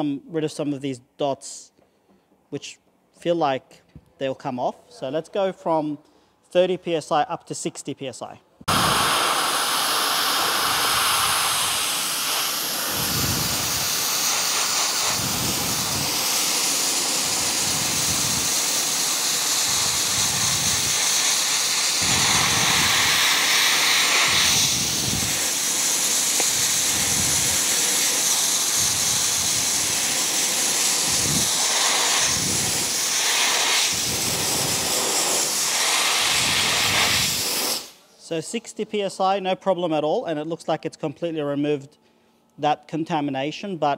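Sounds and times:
dry ice blaster hissing: 8.7 - 38.0.

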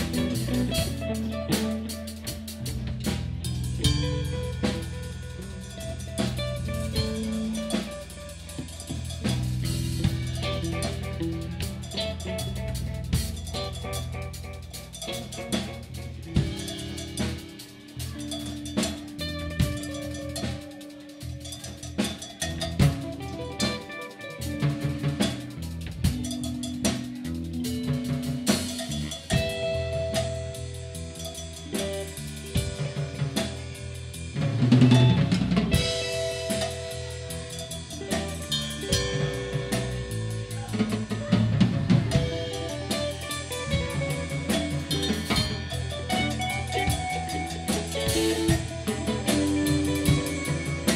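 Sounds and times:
busy drum kit: 0.0 - 50.9
electric guitars sustained notes: 0.0 - 50.9.

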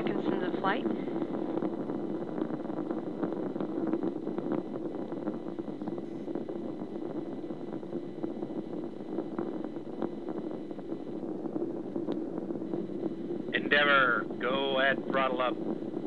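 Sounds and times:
rocket launch roar through speaker: 13.6 - 15.6.

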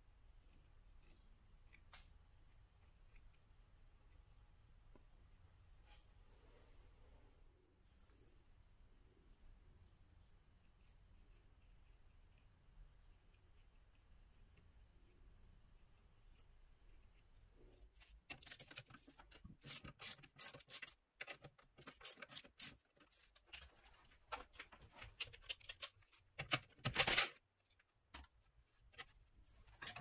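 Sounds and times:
tools and metal parts clinking: 18.3 - 23.7, 29.0 - 30.0.

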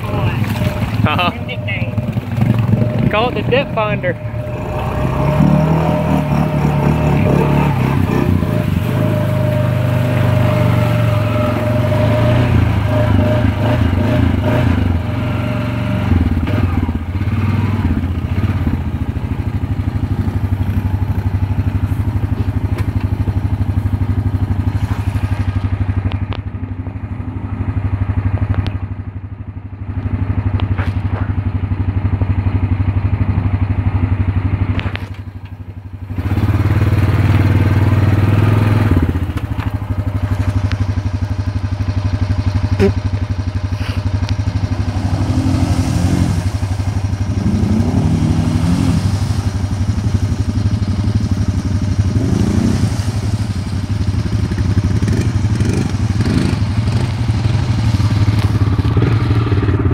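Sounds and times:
atv engine running: 0.0 - 59.9
water splashing and sloshing: 0.0 - 59.9.

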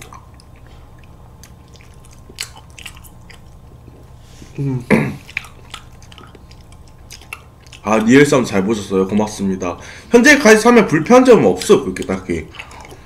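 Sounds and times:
mouth smacking while eating: 0.0 - 8.1, 11.6 - 13.0.

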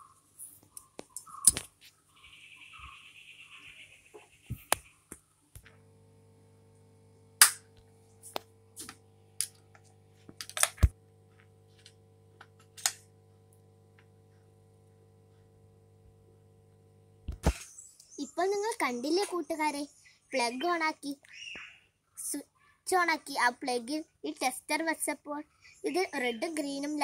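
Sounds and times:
low electrical hum: 0.0 - 21.1.

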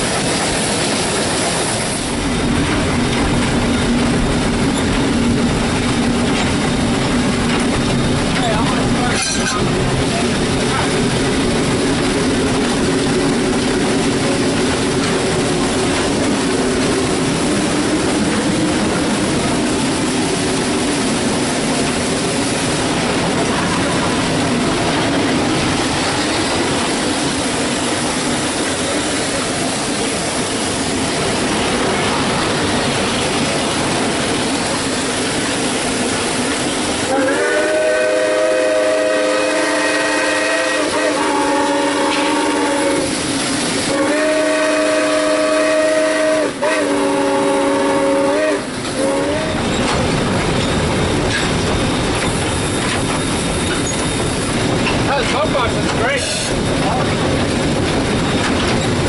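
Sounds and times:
steam locomotive hiss and rumble: 0.0 - 59.0
steam whistle blast: 37.1 - 43.2, 43.8 - 49.6.

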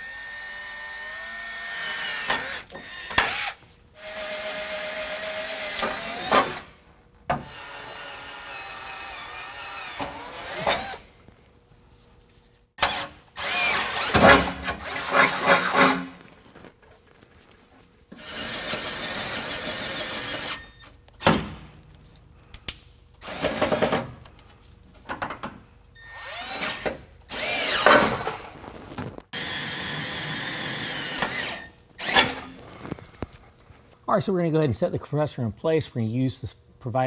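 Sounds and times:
cordless drill boring into steel: 0.0 - 6.7, 7.4 - 11.0, 12.8 - 16.0, 18.2 - 20.8, 26.0 - 28.2, 29.4 - 32.5.

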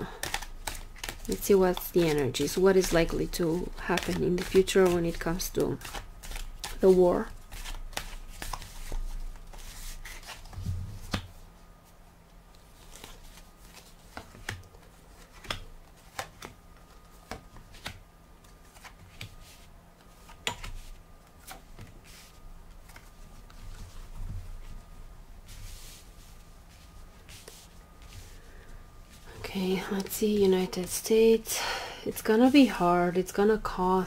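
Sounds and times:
cards shuffling: 0.2 - 11.3, 12.7 - 16.6.

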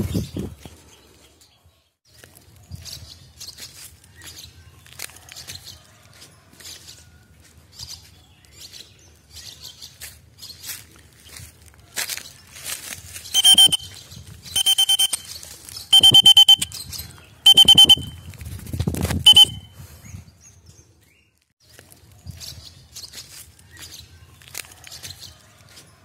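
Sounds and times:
lovebirds calling shrilly: 2.7 - 5.9, 7.7 - 18.3, 19.3 - 21.3.

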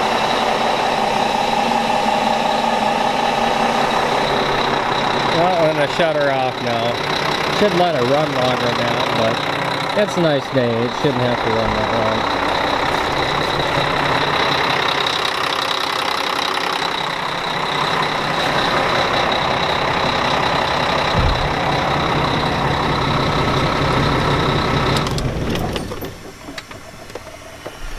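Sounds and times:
diesel engine idling: 0.0 - 27.9.

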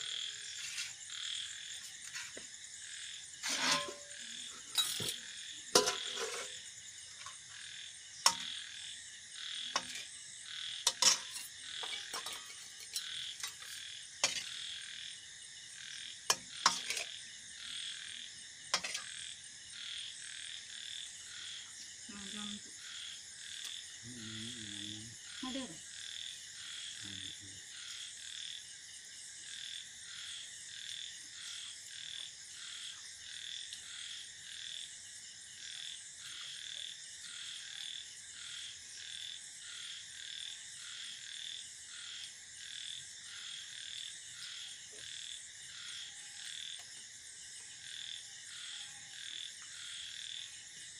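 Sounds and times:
person's low voice: 24.0 - 25.1.

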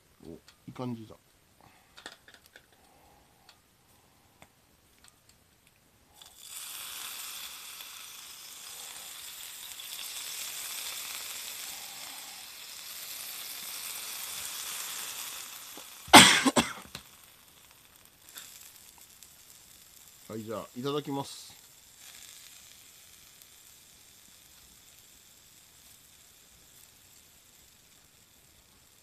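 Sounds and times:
food sizzling on hot plate: 6.1 - 29.0.

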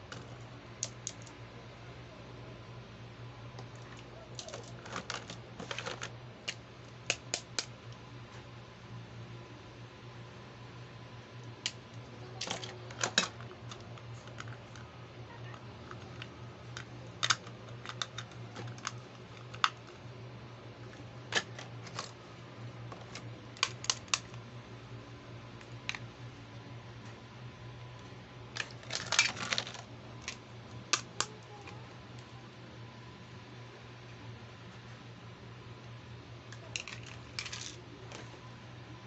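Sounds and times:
faint low hum: 0.0 - 39.0
plastic toy pieces clicking: 15.9 - 19.9, 23.0 - 24.4, 28.5 - 31.3, 36.5 - 37.8.

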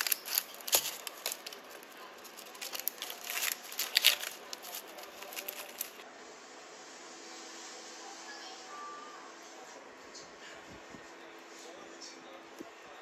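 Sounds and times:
parchment paper crinkling: 0.0 - 6.0.

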